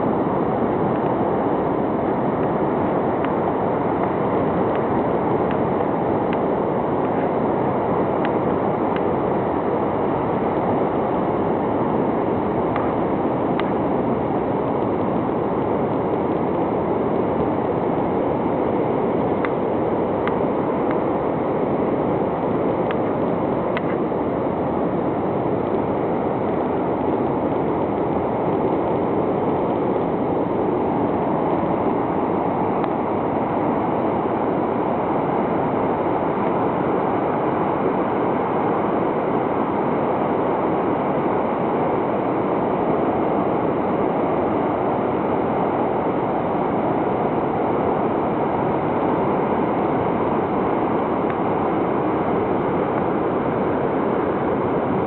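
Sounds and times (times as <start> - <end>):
ocean waves breaking on beach: 0.0 - 55.0.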